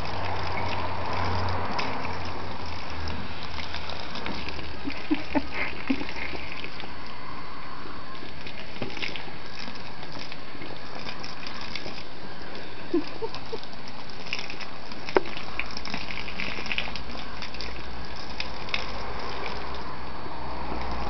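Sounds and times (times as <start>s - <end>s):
water spraying onto lawn: 0.0s - 7.3s, 8.0s - 21.0s.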